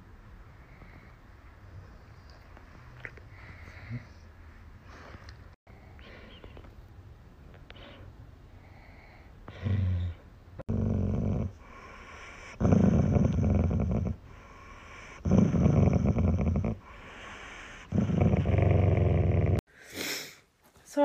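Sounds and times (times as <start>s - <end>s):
dog growling and grumbling: 9.5s - 14.3s, 14.9s - 16.9s, 17.7s - 19.6s.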